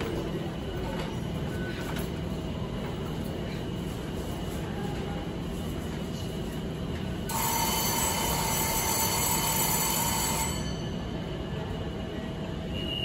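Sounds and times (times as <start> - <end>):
train humming: 0.0 - 13.0
door warning buzzer: 7.3 - 10.6.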